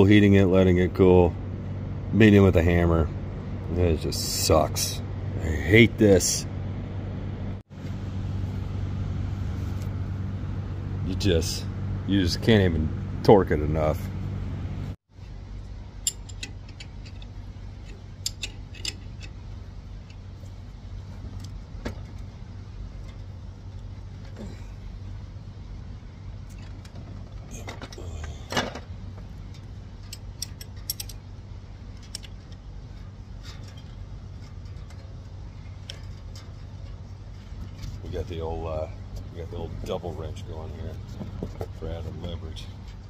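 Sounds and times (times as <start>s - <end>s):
steady low hum: 0.0s - 43.0s
wrench clinking and clicking: 16.0s - 19.4s, 29.5s - 31.2s.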